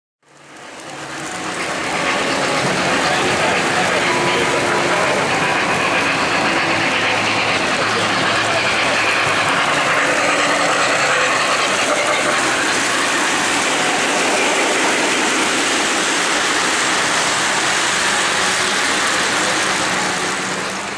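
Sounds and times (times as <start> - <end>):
model trains running on track: 0.2 - 20.9.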